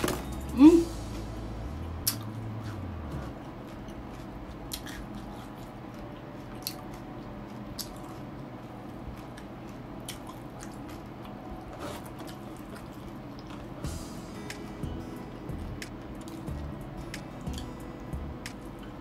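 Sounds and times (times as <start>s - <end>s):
wet chewing and mouth smacks: 2.0s - 8.3s, 9.1s - 11.1s.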